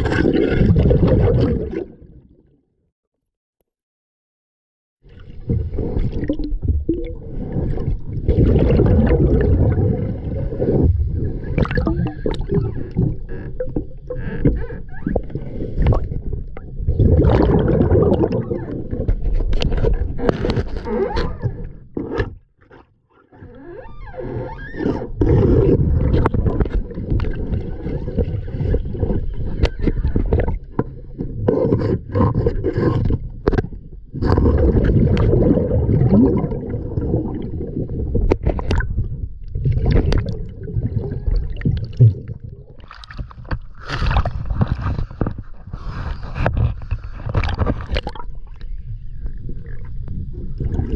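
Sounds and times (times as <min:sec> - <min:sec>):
underwater rumble and gurgling: 0:00.0 - 0:02.7, 0:05.0 - 0:50.9
knocks and scrapes: 0:19.1 - 0:23.6, 0:43.0 - 0:48.1.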